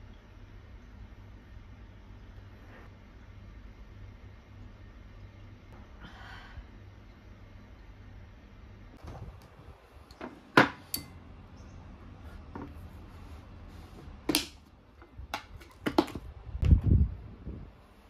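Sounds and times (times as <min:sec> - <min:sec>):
clicks and knocks of household items: 0:14.3 - 0:16.3.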